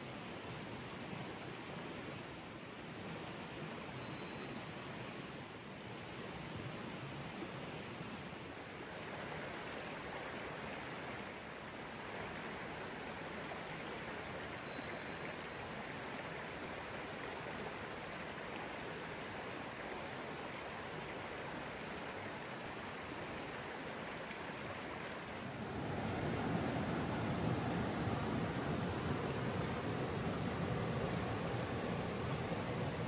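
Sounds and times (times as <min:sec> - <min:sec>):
stream water flowing: 0:00.0 - 0:33.0.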